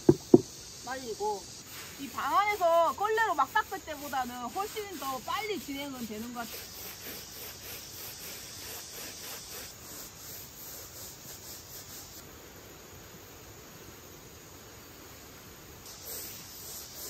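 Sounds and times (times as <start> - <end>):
garden hose spraying water: 0.0 - 12.3, 15.6 - 17.0
brush scrubbing wet mat: 1.6 - 12.2.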